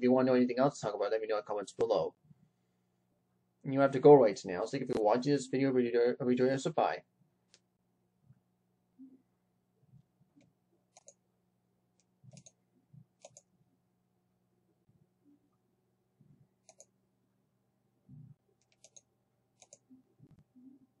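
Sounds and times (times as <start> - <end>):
faint steady hum: 0.0 - 21.0
computer mouse clicks: 10.4 - 11.2, 12.0 - 12.6, 13.2 - 13.5, 16.6 - 16.9, 18.6 - 20.4.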